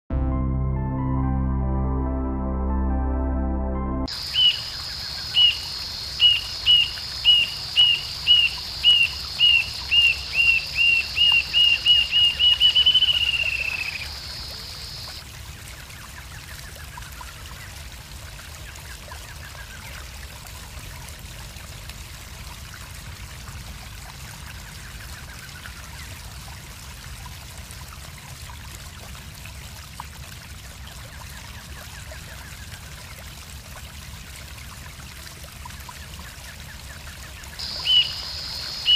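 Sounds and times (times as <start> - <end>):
steady high hiss: 4.1 - 15.2, 37.6 - 38.9
bird singing whistled notes: 6.2 - 14.2, 37.6 - 38.9
distant bird calls: 37.6 - 38.9.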